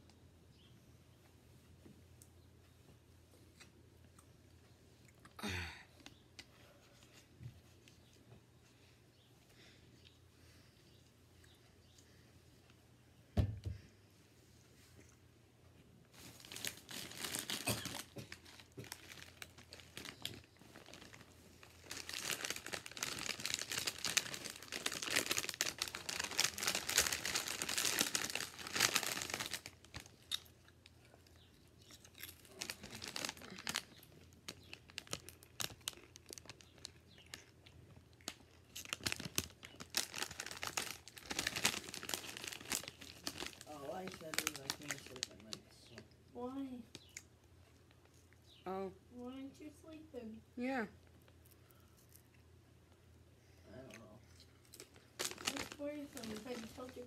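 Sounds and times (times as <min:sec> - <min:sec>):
plastic bag crinkling: 0:16.2 - 0:30.5, 0:31.9 - 0:46.0, 0:54.7 - 0:57.0.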